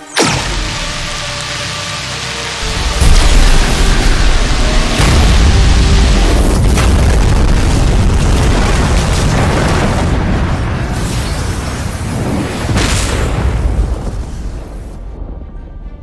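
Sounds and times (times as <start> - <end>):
deep rumbling boom: 0.0 - 10.9.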